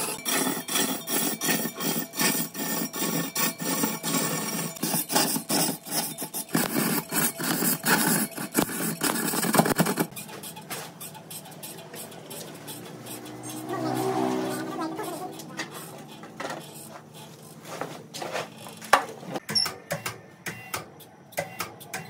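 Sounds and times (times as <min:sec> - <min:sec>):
tool rasping into wood: 0:00.0 - 0:17.4.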